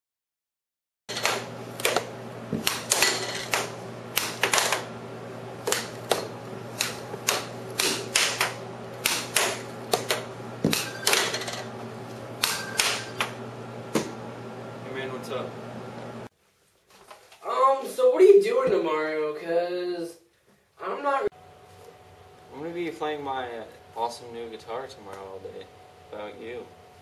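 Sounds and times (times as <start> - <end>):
air hockey puck and mallet clacking: 1.1 - 4.9, 5.7 - 11.6
air hockey table blower hum: 1.1 - 16.3.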